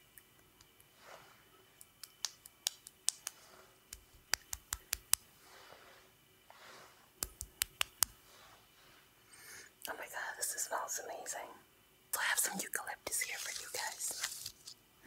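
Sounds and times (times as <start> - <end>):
hands rubbing swishes: 1.0 - 9.0
hands pressed making clicks: 1.8 - 5.2, 7.2 - 8.2.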